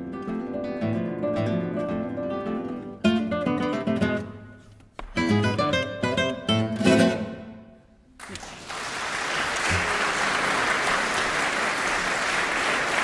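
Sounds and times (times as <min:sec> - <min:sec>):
audience applauding: 0:08.2 - 0:13.0.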